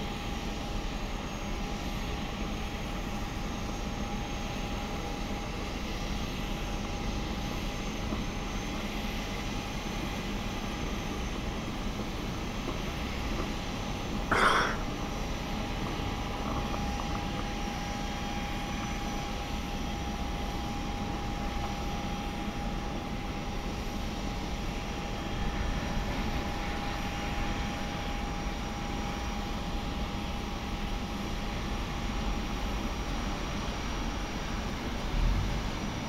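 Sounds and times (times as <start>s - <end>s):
constant whine: 0.0s - 36.0s
jet aircraft drone: 0.0s - 36.0s
ground equipment: 14.3s - 14.9s.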